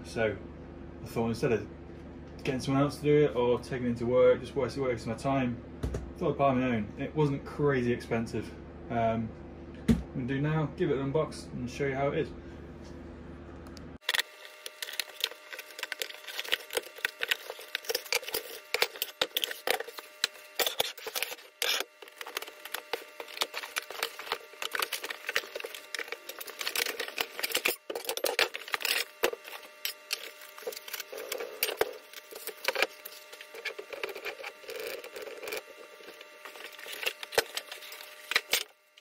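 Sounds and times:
cardboard crackling and rustling: 0:14.0 - 0:38.6.

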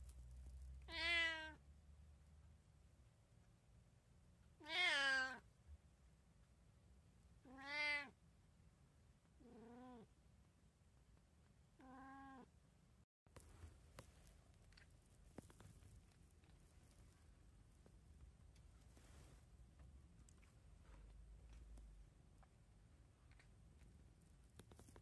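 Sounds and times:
cat meowing: 0:00.9 - 0:01.6, 0:04.6 - 0:05.4, 0:07.4 - 0:08.2, 0:09.4 - 0:10.1, 0:11.8 - 0:12.5.

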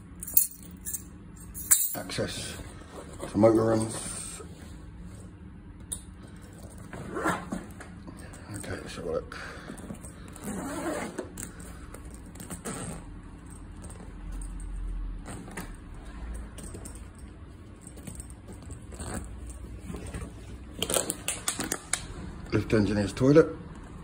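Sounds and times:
items rattling in tool bag: 0:06.4 - 0:21.8
zip pulled open: 0:10.2 - 0:11.6, 0:12.4 - 0:13.1.

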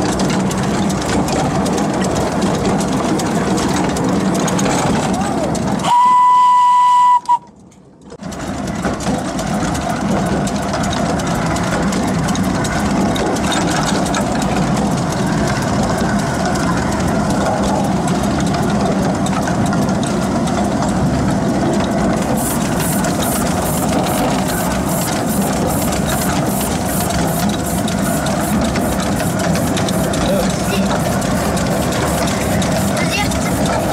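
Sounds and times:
locomotive running along track: 0:00.0 - 0:33.9
steam locomotive whistle: 0:05.8 - 0:07.5
ticking: 0:08.4 - 0:33.9.

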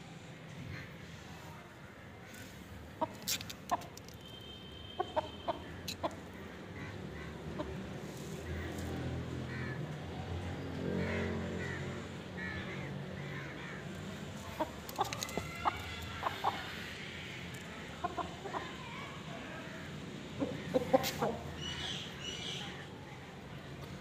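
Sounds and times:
chickens clucking: 0:02.9 - 0:04.0, 0:05.0 - 0:06.4, 0:07.4 - 0:08.9, 0:14.4 - 0:18.8, 0:20.2 - 0:21.9.

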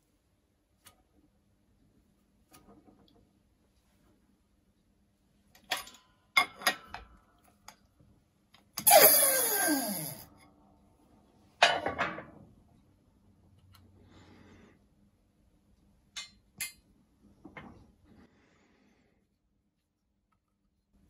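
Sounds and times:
metallic sound sliding down in pitch: 0:08.8 - 0:10.3.

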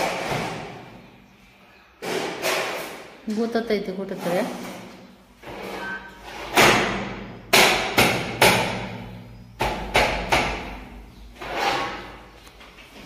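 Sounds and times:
window frame knocks and bangs: 0:00.0 - 0:00.9, 0:06.5 - 0:10.9.

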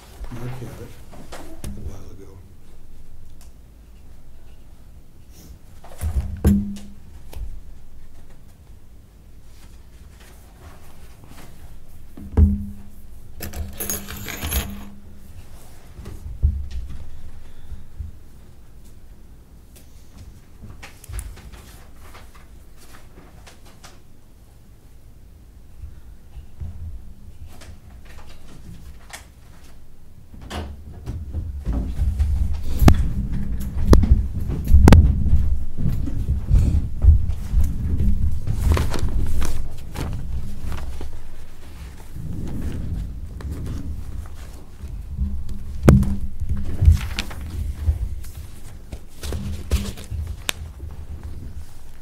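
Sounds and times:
sharp knocks: 0:06.2 - 0:07.0, 0:12.2 - 0:12.9
footsteps on wooden floor: 0:31.3 - 0:50.4.

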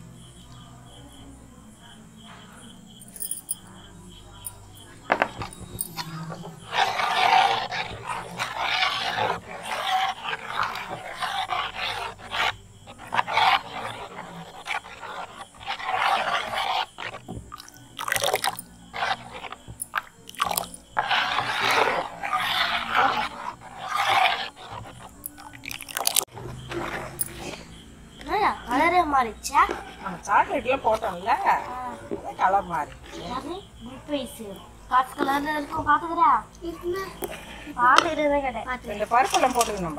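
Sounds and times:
ladle stirring and scraping pan: 0:04.7 - 0:33.5, 0:38.9 - 0:39.9.

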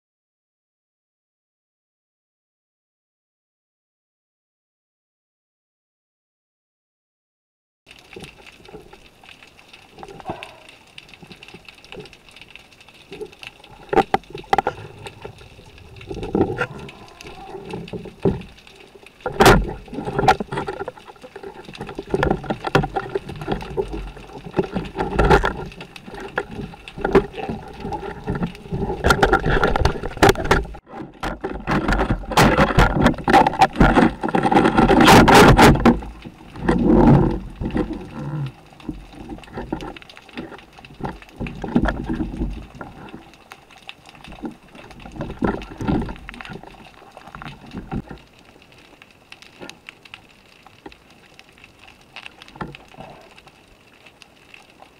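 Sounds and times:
underwater rushing water: 0:07.9 - 0:54.9
sharp clicks and knocks: 0:11.0 - 0:38.1.

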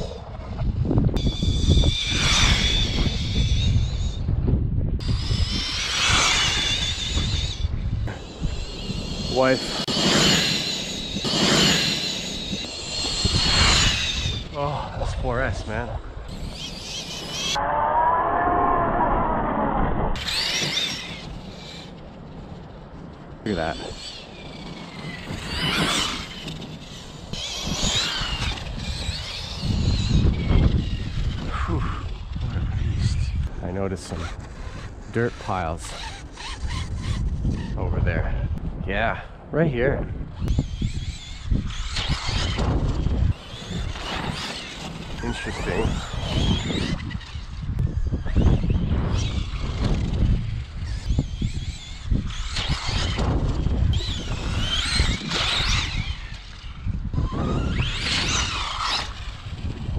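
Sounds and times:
electric motor whining: 0:01.1 - 0:04.4, 0:05.0 - 0:14.6, 0:16.2 - 0:22.4, 0:23.5 - 0:33.5, 0:40.4 - 0:59.9
steady low rumble: 0:17.4 - 0:20.5.

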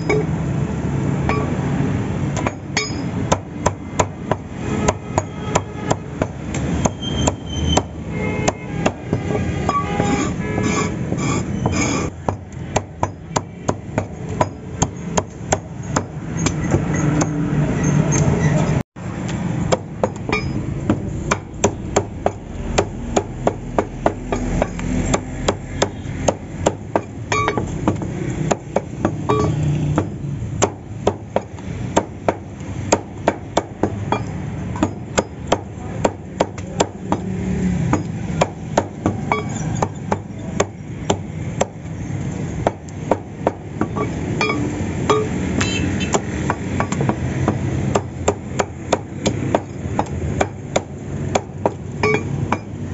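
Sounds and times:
cleaver chopping on wooden block: 0:19.2 - 0:52.8.

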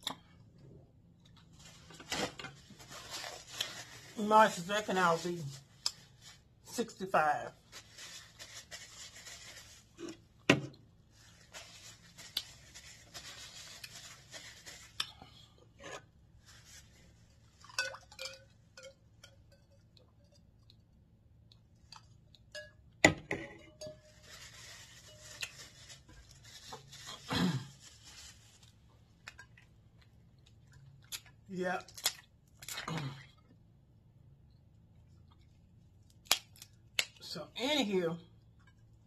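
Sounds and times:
rustling: 0:01.4 - 0:06.4, 0:07.6 - 0:10.4, 0:11.0 - 0:15.2, 0:16.4 - 0:18.0, 0:23.8 - 0:29.4
glassware and dishes clinking: 0:17.6 - 0:19.7.

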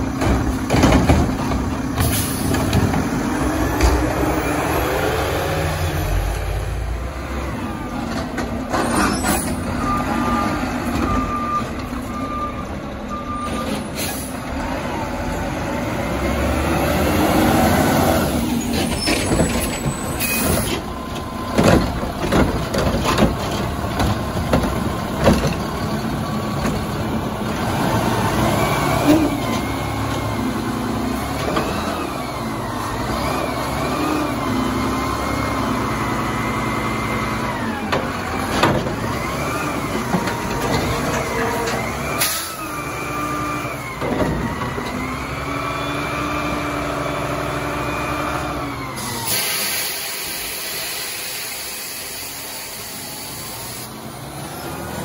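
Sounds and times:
garbage truck diesel engine: 0:00.0 - 0:55.0
air brakes hissing: 0:02.0 - 0:02.6, 0:13.7 - 0:14.4, 0:19.6 - 0:20.8, 0:42.2 - 0:42.7, 0:49.0 - 0:53.9.

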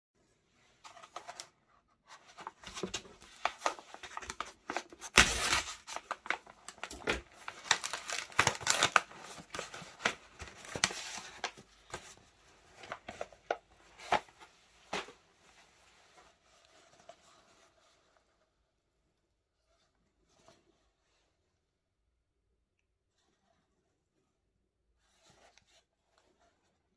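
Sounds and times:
paper mailer crinkling and tearing: 0:02.4 - 0:12.0.

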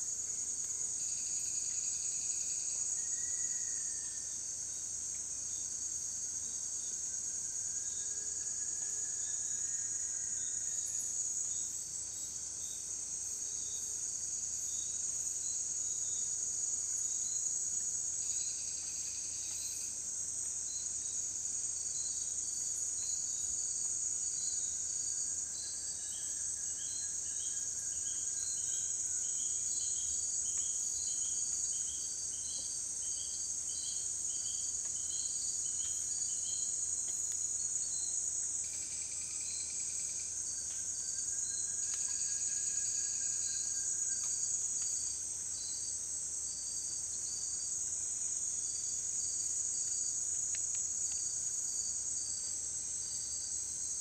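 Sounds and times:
insect trill: 0:00.0 - 0:54.0.

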